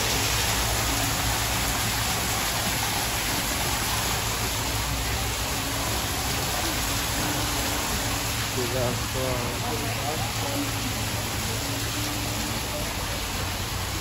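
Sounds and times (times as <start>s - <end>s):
waterfalls splashing into pond: 0.0s - 14.0s.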